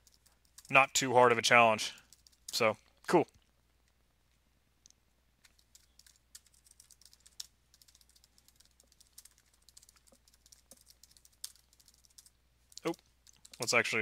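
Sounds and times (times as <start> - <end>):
typing on keyboard: 0.0 - 0.8, 1.9 - 2.6, 5.4 - 13.8.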